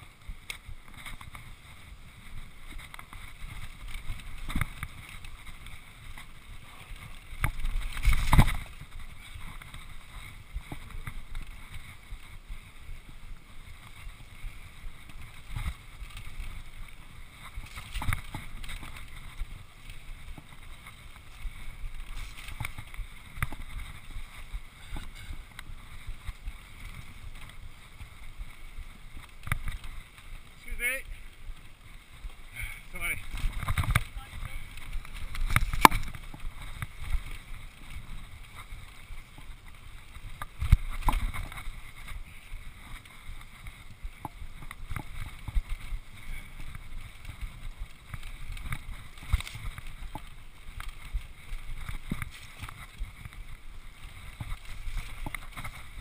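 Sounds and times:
bike tyres rumbling on dirt: 0.0 - 56.0
wind on microphone: 0.0 - 56.0
bike knocks and rattles: 2.7 - 11.9, 33.2 - 42.1.

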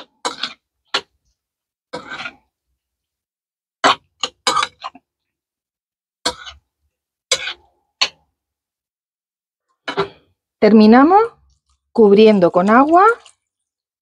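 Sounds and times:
metal spoon scraping ceramic bowl: 1.9 - 2.5, 3.8 - 5.0, 6.2 - 6.7, 7.3 - 8.2.

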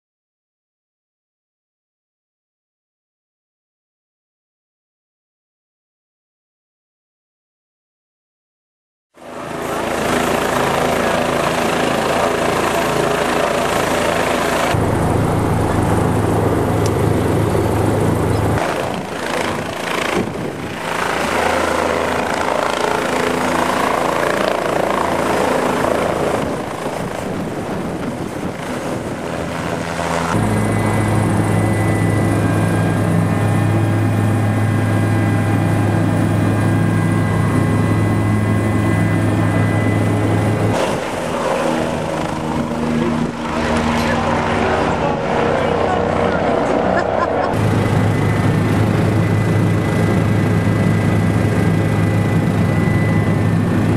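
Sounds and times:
helicopter rotor beating: 9.2 - 53.9
high whine: 14.4 - 23.1, 25.7 - 53.9.

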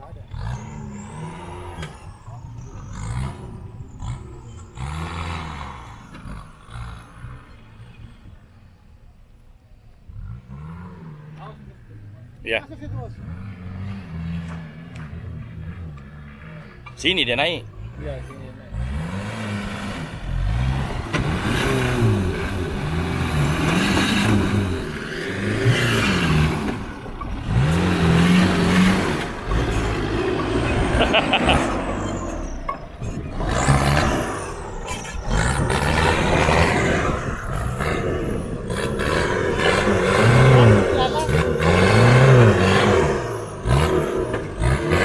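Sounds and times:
off-road engine revving hard: 0.0 - 8.2, 10.0 - 45.0.

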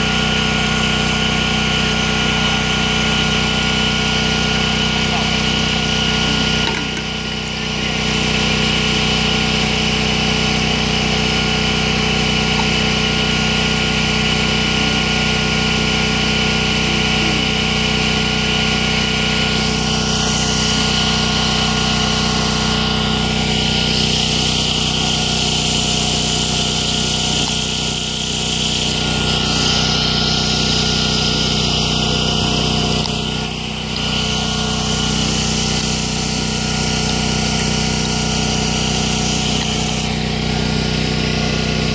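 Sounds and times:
small engine humming steadily: 0.0 - 41.9.

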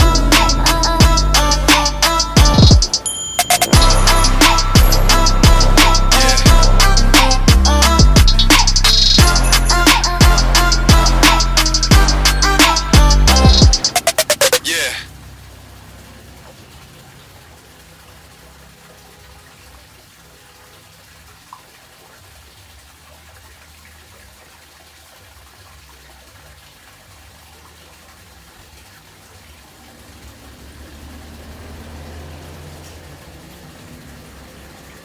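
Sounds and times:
aquarium water splashing: 14.0 - 35.0.

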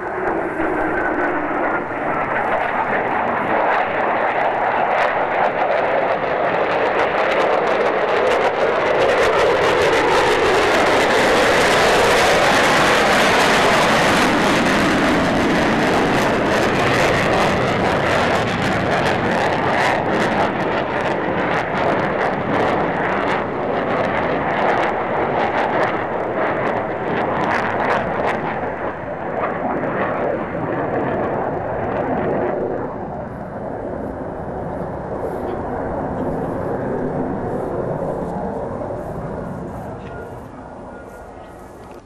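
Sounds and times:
fighter jets roaring: 0.0 - 42.0.

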